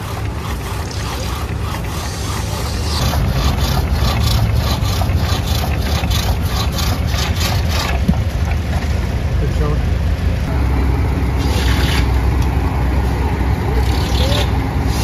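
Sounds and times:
saw blade strokes through log: 0.0 - 8.0, 11.4 - 12.2, 13.8 - 15.0
engine drone: 0.0 - 15.0.

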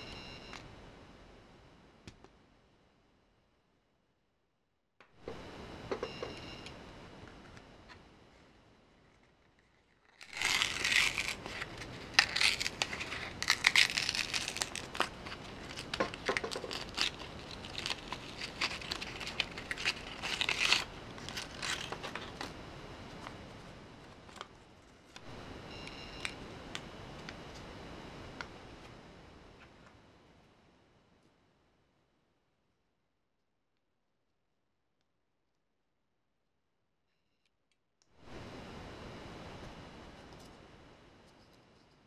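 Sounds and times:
card backing crinkling and tearing: 9.1 - 22.6.

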